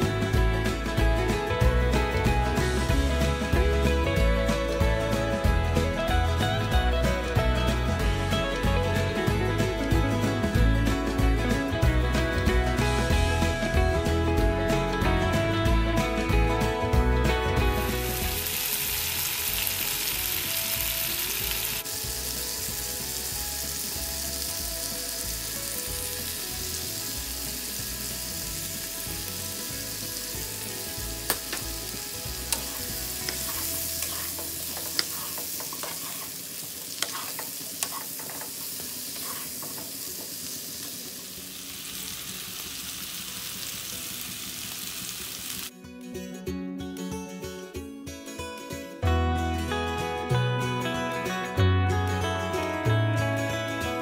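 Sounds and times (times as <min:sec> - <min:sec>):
potatoes sizzling in a pan: 0:17.6 - 0:45.7.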